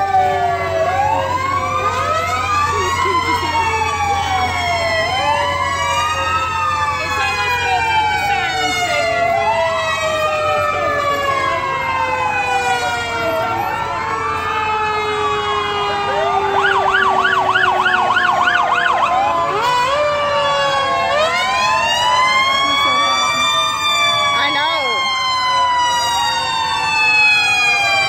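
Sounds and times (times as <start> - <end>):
siren yelping: 0.0 - 28.0
sirens wailing: 0.0 - 28.0.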